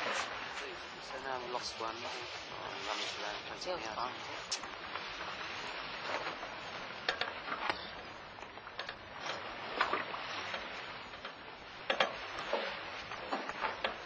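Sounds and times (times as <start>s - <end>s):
water rushing along hull: 0.0s - 14.0s
water splashes: 0.0s - 14.0s.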